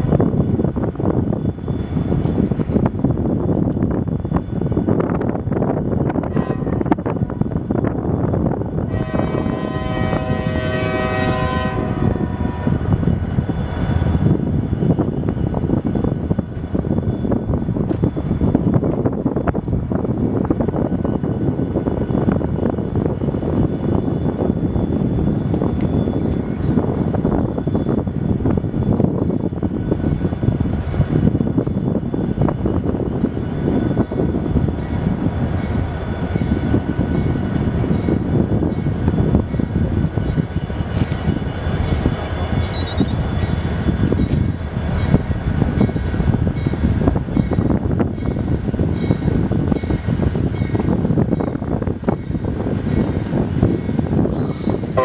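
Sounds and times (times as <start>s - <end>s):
diesel locomotive rumble: 0.0s - 55.0s
locomotive air horn blast: 8.9s - 12.7s.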